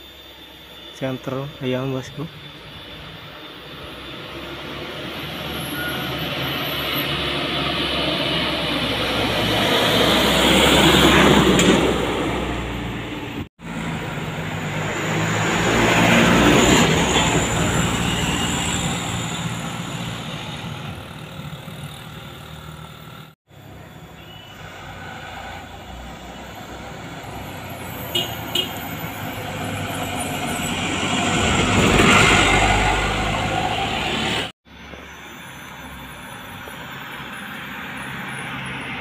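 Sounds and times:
diesel truck engine labouring uphill: 0:02.0 - 0:23.8.

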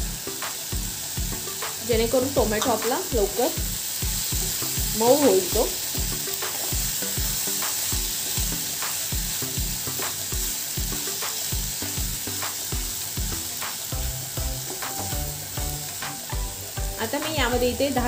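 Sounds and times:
steady low beat: 0:00.0 - 0:02.8, 0:12.8 - 0:17.7
vegetables sizzling in oil: 0:00.0 - 0:18.0.

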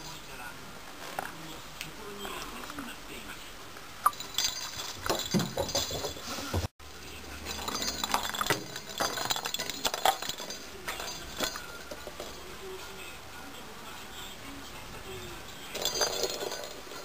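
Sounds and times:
toy ball bell jingling: 0:04.1 - 0:06.2, 0:07.5 - 0:12.6, 0:15.4 - 0:17.0.

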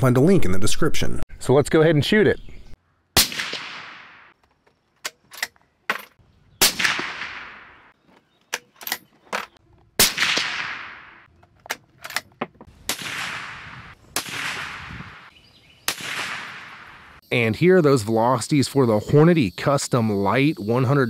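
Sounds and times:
suppressed rifle shots: 0:03.2 - 0:04.3, 0:06.6 - 0:08.0, 0:10.0 - 0:11.3, 0:12.8 - 0:15.3, 0:15.9 - 0:17.1
rifle bolt metallic clicks: 0:05.0 - 0:06.1, 0:11.3 - 0:12.5.

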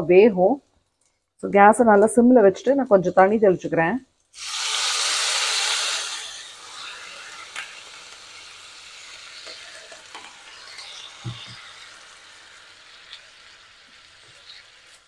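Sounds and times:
radish sizzling in oil: 0:04.4 - 0:15.0.

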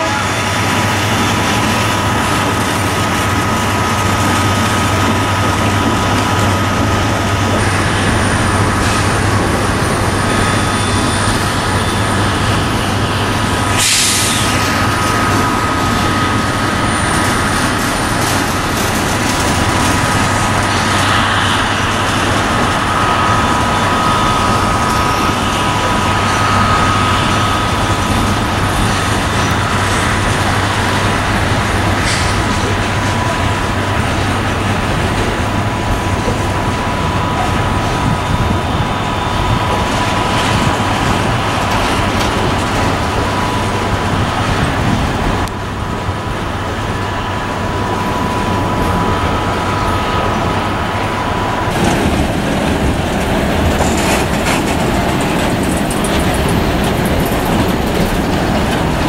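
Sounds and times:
diesel locomotive engines rumbling: 0:00.0 - 0:59.0
short air hiss: 0:13.7 - 0:14.6.

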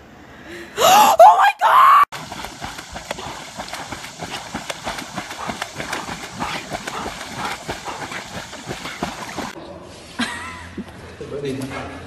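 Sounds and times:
dogs splashing in water: 0:02.1 - 0:09.6.

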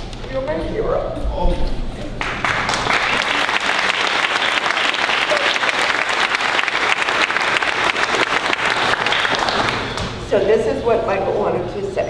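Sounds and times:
audience applause: 0:02.2 - 0:10.2.

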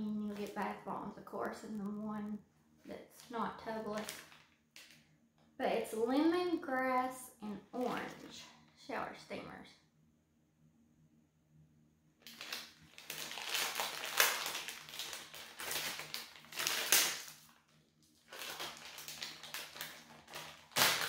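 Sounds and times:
plastic wrapping crackling: 0:00.0 - 0:00.8, 0:03.2 - 0:05.0, 0:12.2 - 0:21.0.

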